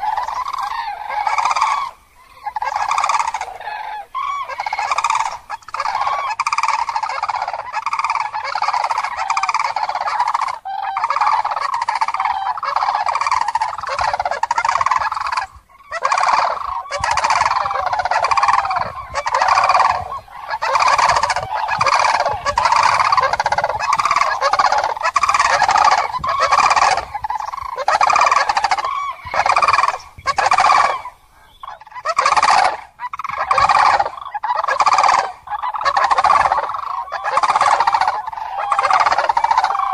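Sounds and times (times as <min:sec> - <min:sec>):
cranes trumpeting calls: 0:00.0 - 0:39.9.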